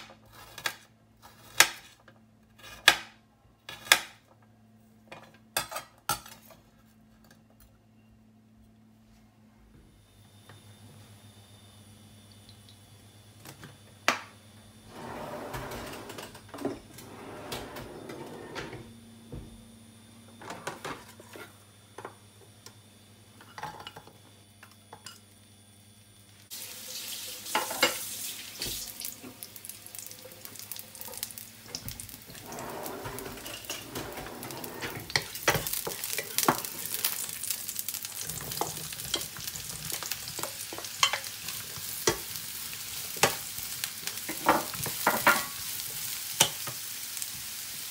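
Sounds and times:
food sizzling in oil: 0:26.3 - 0:47.9
wooden spatula scraping pan: 0:32.3 - 0:36.8.

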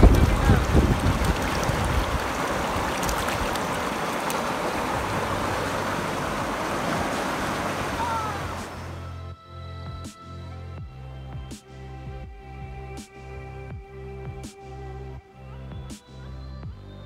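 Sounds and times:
water splashing from a jug: 0:00.0 - 0:08.8
river water rushing: 0:00.0 - 0:09.0
music: 0:05.1 - 0:17.0.

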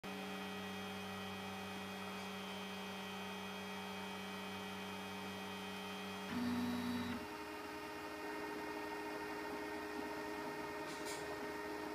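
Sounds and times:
stepper motors humming: 0:06.3 - 0:07.2.

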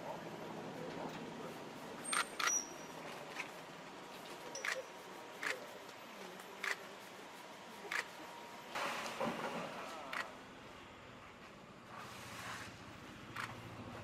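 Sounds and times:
murmur of background voices: 0:00.0 - 0:08.8.

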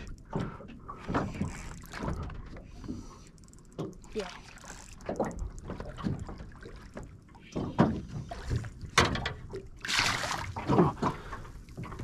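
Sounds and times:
squid splashing in water: 0:09.8 - 0:10.6.

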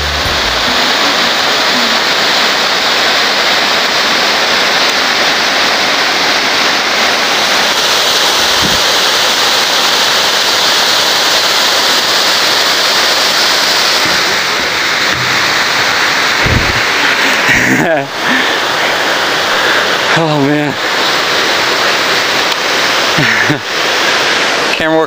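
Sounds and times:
low bump: 0:00.0 - 0:00.8, 0:15.0 - 0:17.1
waterfall roaring: 0:00.0 - 0:25.0.

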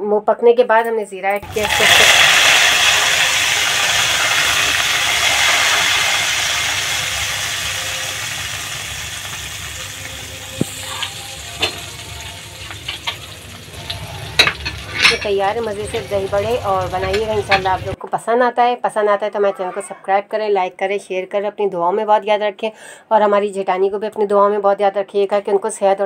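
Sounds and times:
hot oil sizzling: 0:01.4 - 0:18.0.

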